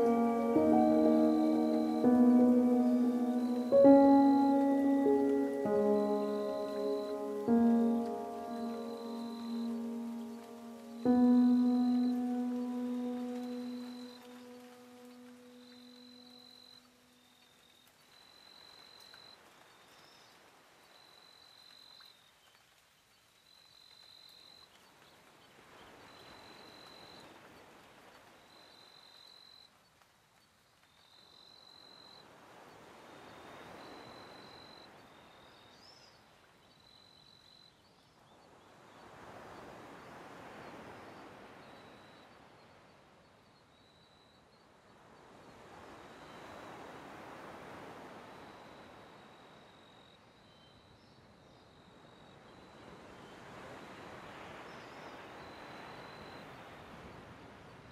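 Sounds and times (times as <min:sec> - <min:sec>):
soft hiss: 0:00.0 - 0:16.8.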